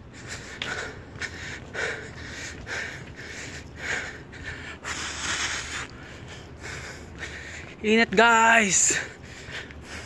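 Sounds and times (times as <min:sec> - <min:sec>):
man breathing hard: 0:00.0 - 0:07.8, 0:08.8 - 0:10.0.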